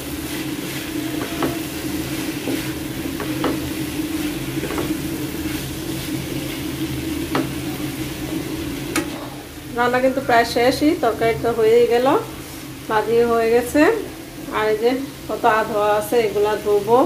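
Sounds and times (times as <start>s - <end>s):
egg sizzling in a pan: 0.0s - 17.0s
utensil knocking against pan: 1.2s - 1.6s, 2.4s - 3.7s, 4.6s - 5.0s, 7.3s - 7.6s.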